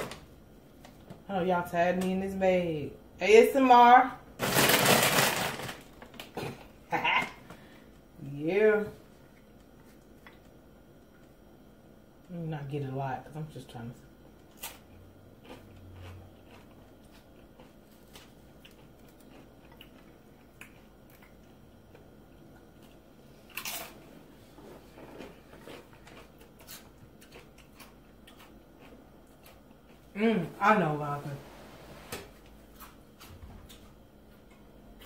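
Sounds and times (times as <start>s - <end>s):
chewing crunchy chip: 14.4s - 30.1s.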